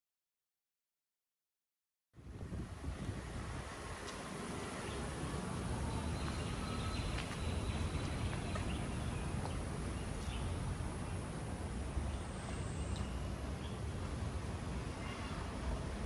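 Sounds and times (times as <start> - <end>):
wind rumble on microphone: 2.2 - 12.1
distant traffic: 2.2 - 16.0.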